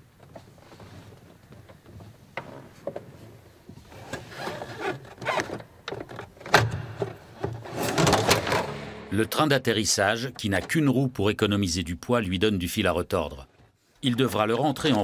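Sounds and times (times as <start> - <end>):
clicks knocks and rubbing in cockpit: 0.2 - 8.4.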